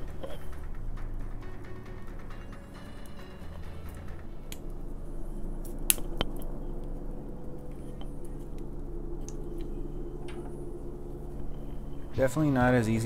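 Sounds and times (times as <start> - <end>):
low hum: 0.0 - 13.0
twig fire crackling: 0.0 - 13.0
sharp snaps and clicks: 5.6 - 7.0, 8.0 - 10.4.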